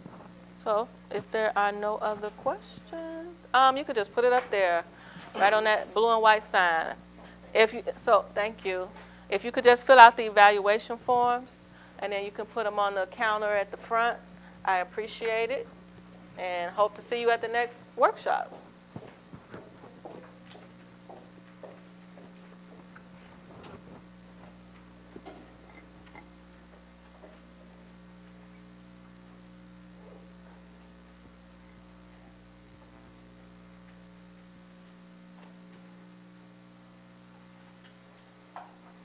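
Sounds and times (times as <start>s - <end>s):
electrical mains hum: 0.0s - 39.0s.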